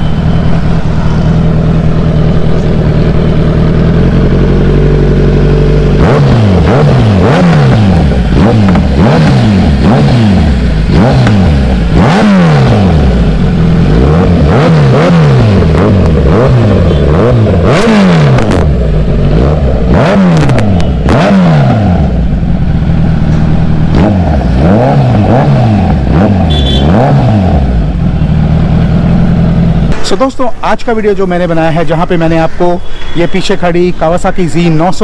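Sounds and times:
motorcycle engine revving: 0.0 - 30.3
exhaust cracks: 1.4 - 27.2.

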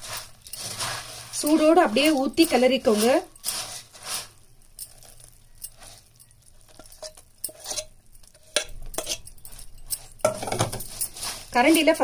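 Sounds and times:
spoon stirring rustling and scraping: 0.0 - 12.0
spoon clinking against plate: 4.8 - 11.3.

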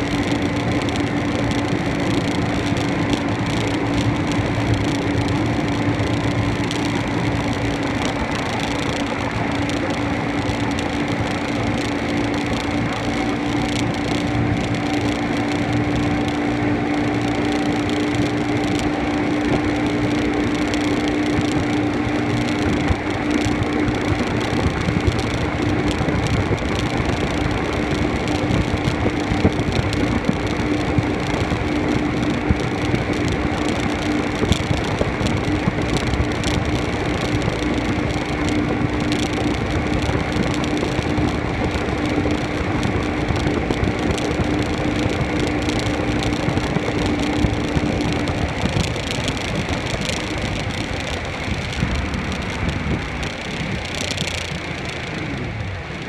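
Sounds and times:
outboard engines running: 0.0 - 56.0.

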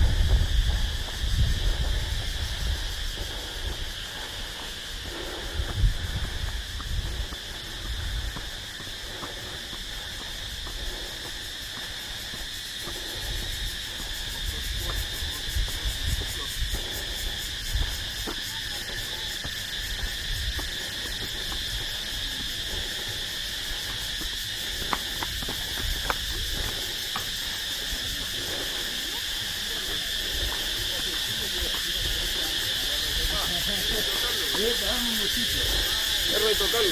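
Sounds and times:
footsteps on concrete: 0.0 - 36.9
high-pitched insect chorus: 0.0 - 36.9.

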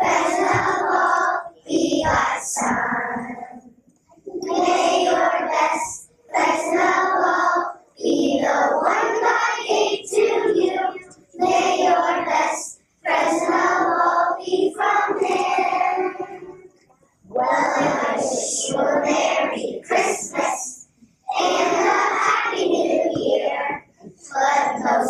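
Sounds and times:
children singing in chorus: 0.0 - 3.7, 4.3 - 16.7, 17.3 - 25.0.

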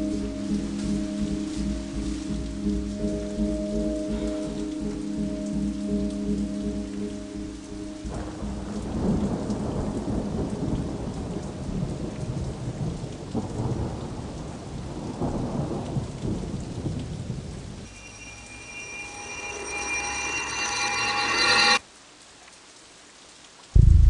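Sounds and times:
steady high ringing tone: 0.0 - 8.6, 17.9 - 21.8
steady rain: 0.0 - 24.0
rolling thunder: 8.0 - 17.9, 23.8 - 24.0.

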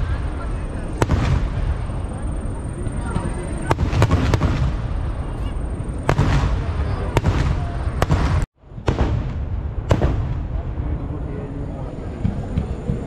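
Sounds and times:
fireworks rumble of explosions: 0.0 - 13.0
sharp loud firework bangs: 0.9 - 2.2, 3.0 - 10.8.

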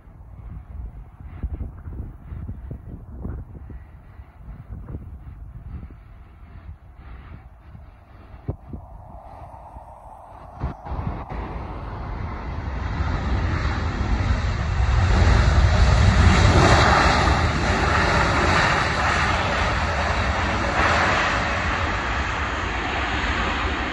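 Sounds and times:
jet engines roaring: 6.1 - 23.9.

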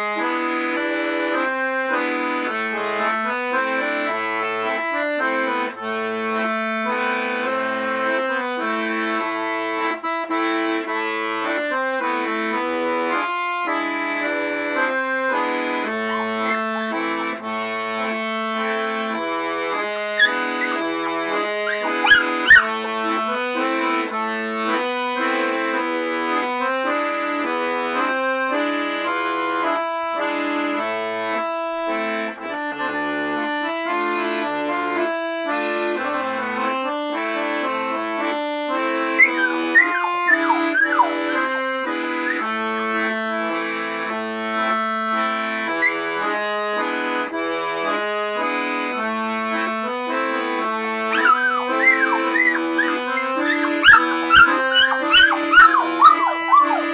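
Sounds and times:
accordion playing a waltz: 0.0 - 56.9
high sliding squeaks: 39.2 - 41.2, 51.2 - 56.9.

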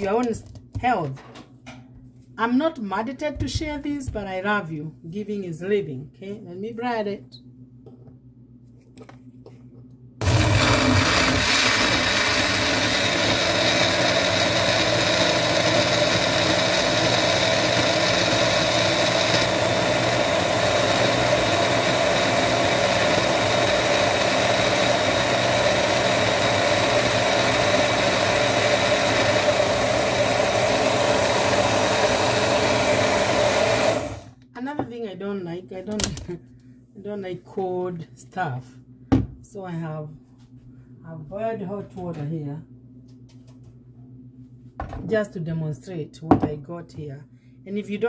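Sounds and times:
blender running: 10.2 - 34.4.

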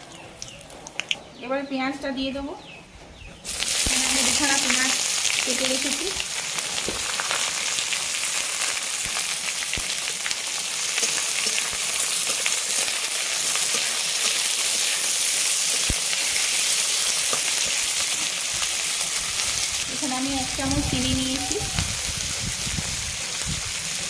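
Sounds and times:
onions sizzling in oil: 3.4 - 24.0.

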